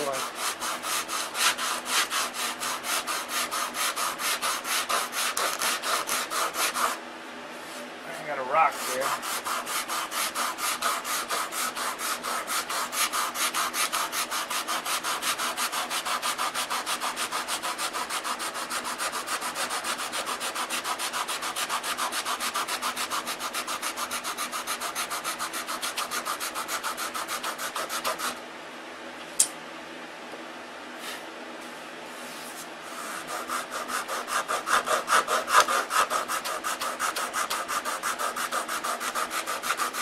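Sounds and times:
sandpaper rubbing on wood: 0.0s - 7.0s, 8.1s - 28.4s, 32.2s - 40.0s
sharp click: 29.4s - 29.6s.

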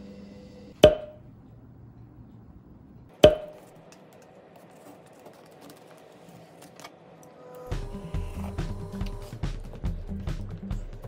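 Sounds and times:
sharp ringing knocks: 0.8s - 1.2s, 3.2s - 3.6s
background music: 7.5s - 11.0s.

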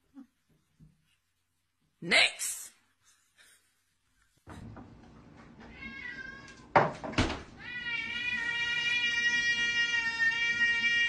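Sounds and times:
cats meowing: 5.5s - 6.8s, 7.5s - 11.0s.

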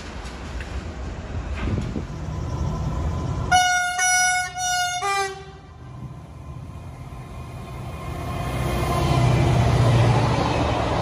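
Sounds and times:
locomotive engine rumble: 0.0s - 11.0s
locomotive horn blasts: 3.5s - 5.7s.

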